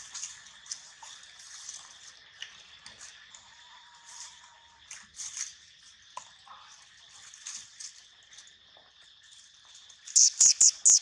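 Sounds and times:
dry leaves crackling underfoot: 0:00.0 - 0:02.6.

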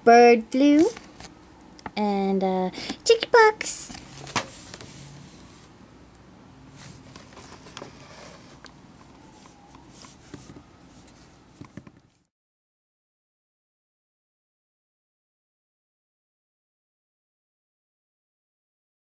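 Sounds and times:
faint room hiss: 0:00.0 - 0:12.3.

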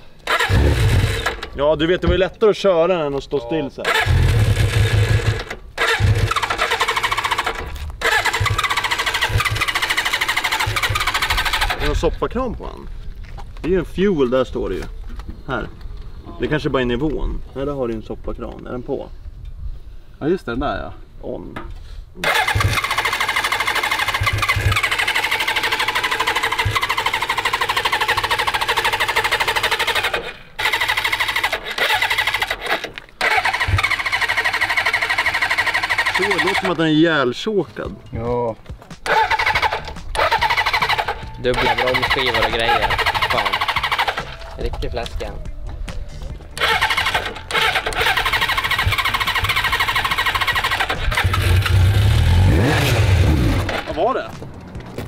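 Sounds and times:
motorcycle engine cranking: 0:00.2 - 0:01.6, 0:03.8 - 0:12.0, 0:22.2 - 0:36.8, 0:38.8 - 0:44.6, 0:46.5 - 0:55.0.

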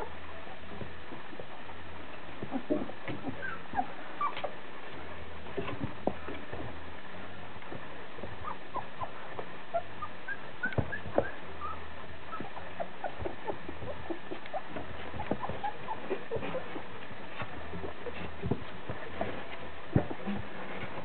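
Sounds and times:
puppies squeaking and whimpering: 0:02.4 - 0:04.5, 0:08.3 - 0:19.2
paws scratching on paper: 0:10.6 - 0:21.0.

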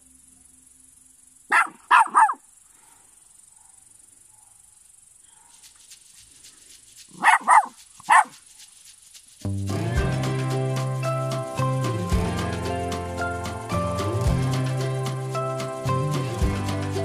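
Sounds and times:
small dog barking: 0:01.5 - 0:02.4, 0:07.1 - 0:08.4.

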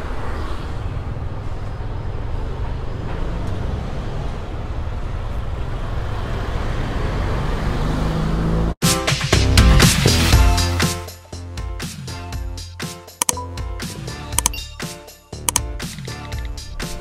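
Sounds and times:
road traffic rumble: 0:00.0 - 0:08.8
music: 0:08.8 - 0:17.0.

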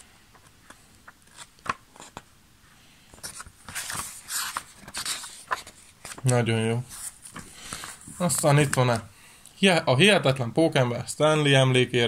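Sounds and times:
comic book pages rustling: 0:00.3 - 0:02.3, 0:03.1 - 0:09.1.

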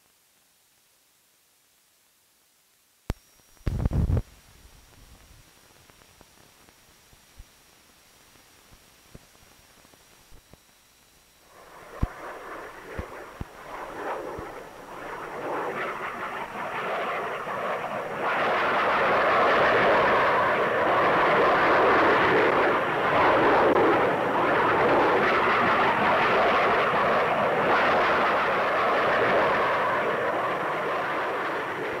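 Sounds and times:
jet aircraft engine rush: 0:11.4 - 0:32.0.

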